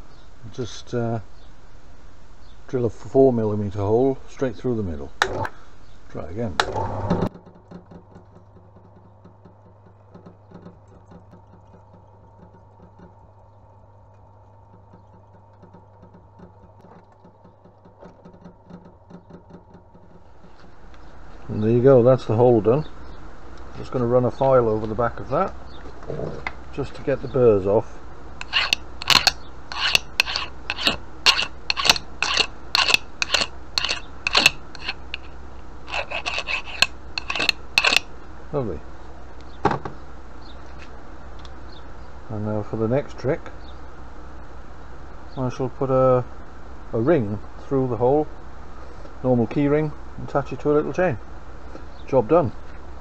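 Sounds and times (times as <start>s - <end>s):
pillar drill motor hum: 26.4s - 38.4s
drill bit cutting ticks: 28.4s - 35.3s, 35.9s - 38.0s
file rasping on steel: 28.4s - 38.1s.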